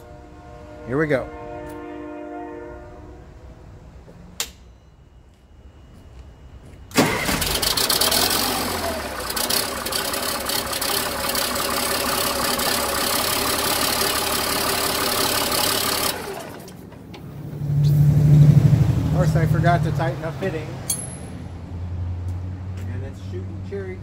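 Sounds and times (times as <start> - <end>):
diesel truck engine running: 6.9 - 20.9.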